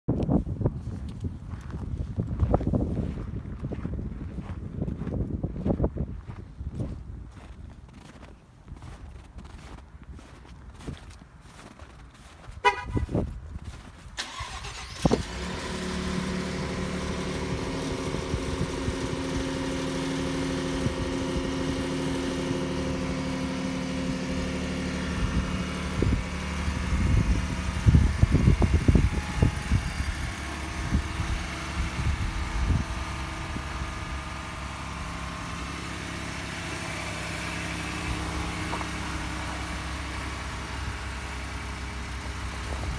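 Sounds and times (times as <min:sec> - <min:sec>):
starter cranking with whine: 0:14.2 - 0:19.2
engine fast cold idle: 0:14.2 - 0:42.9.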